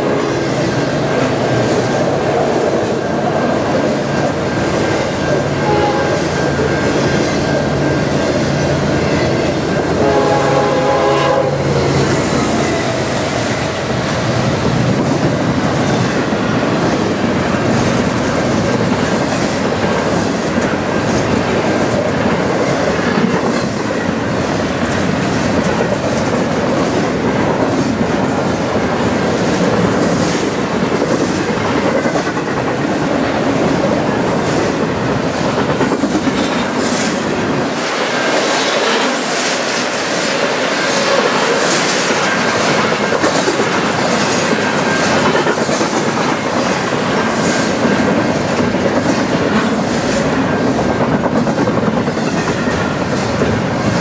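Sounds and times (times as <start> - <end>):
freight train wheels clattering: 0.0 - 54.0
locomotive air horn: 5.6 - 6.4, 10.0 - 11.9.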